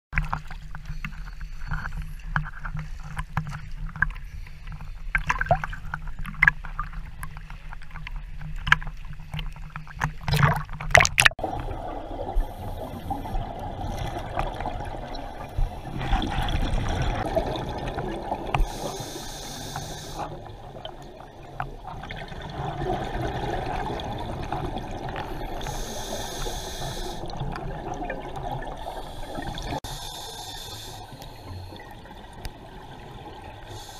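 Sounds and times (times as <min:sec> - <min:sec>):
muffled underwater wash: 0:00.2 - 0:33.9
regulator bubbles hissing: 0:10.4 - 0:33.9.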